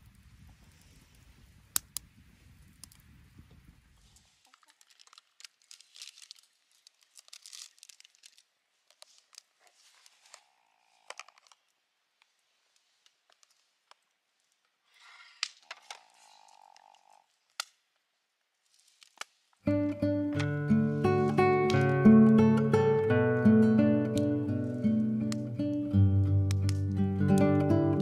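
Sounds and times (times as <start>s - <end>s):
plastic container lid crinkling: 4.5s - 10.4s.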